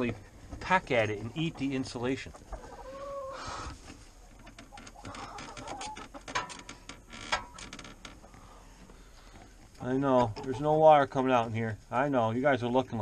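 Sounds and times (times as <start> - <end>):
chickens softly calling: 0.2 - 6.8.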